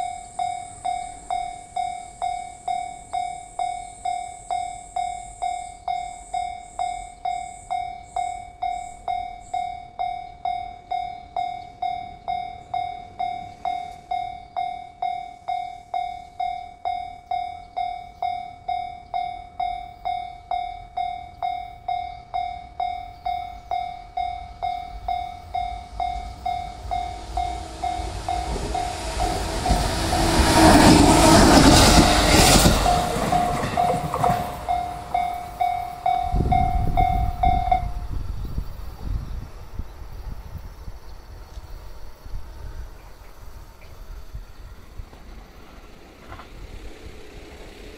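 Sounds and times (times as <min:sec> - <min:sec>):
level crossing warning bell: 0:00.0 - 0:38.2
train passing: 0:00.0 - 0:47.9.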